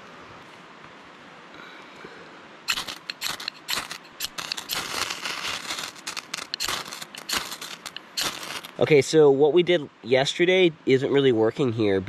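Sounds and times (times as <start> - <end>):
knife rasping on ferro rod: 2.7 - 8.7.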